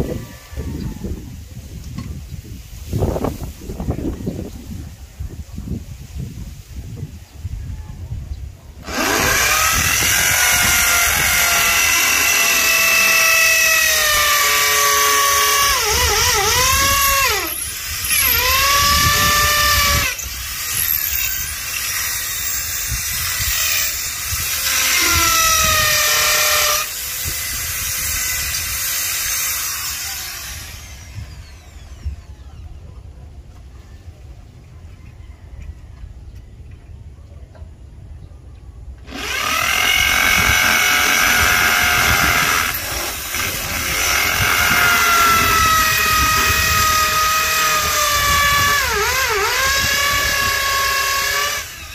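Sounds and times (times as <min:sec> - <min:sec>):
electric drill drilling metal: 0:08.8 - 0:32.2, 0:39.1 - 0:51.9.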